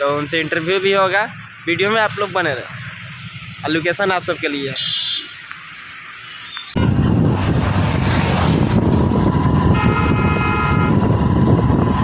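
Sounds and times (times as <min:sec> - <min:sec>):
motorcycle road noise rumble: 0:00.0 - 0:12.0
vehicle horn: 0:04.8 - 0:05.3, 0:09.7 - 0:11.1
wind buffeting microphone: 0:06.8 - 0:12.0.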